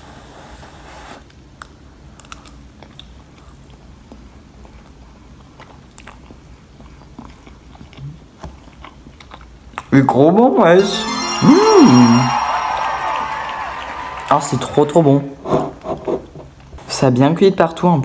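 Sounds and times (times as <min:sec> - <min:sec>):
person chewing: 0:02.2 - 0:09.9.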